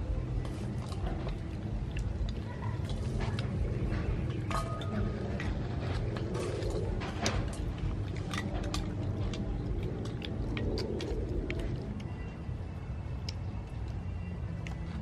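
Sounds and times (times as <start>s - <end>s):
low rumble: 0.0s - 15.0s
child chewing: 0.1s - 15.0s.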